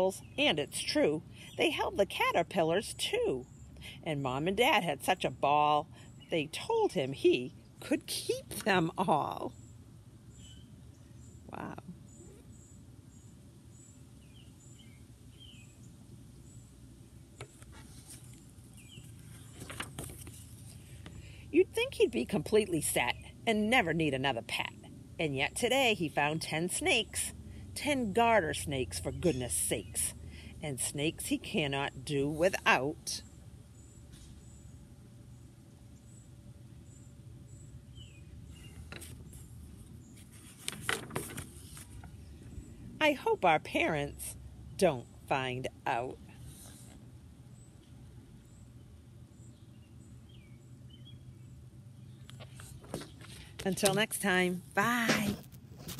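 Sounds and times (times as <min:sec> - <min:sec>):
faint steady low hum: 0:00.0 - 0:55.9
distant birds chirping: 0:05.2 - 0:23.5, 0:28.8 - 0:43.3, 0:46.0 - 0:54.6
paper crinkles and rustles: 0:17.4 - 0:21.1, 0:38.8 - 0:42.2, 0:55.1 - 0:55.9
book pages rustling: 0:17.4 - 0:21.2, 0:38.7 - 0:42.2, 0:52.3 - 0:54.1, 0:55.0 - 0:55.9.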